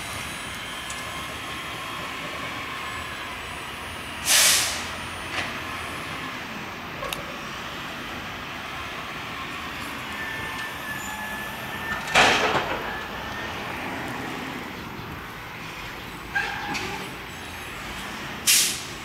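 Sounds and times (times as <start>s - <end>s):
street traffic noise: 0.0s - 19.0s
loud hissing bursts: 4.2s - 5.0s, 18.5s - 18.9s.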